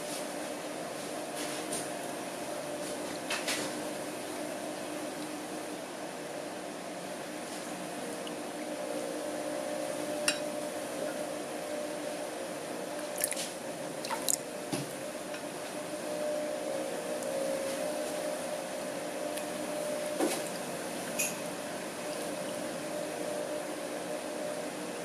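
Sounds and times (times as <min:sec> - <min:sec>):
wet slime squishing: 0:13.1 - 0:14.4.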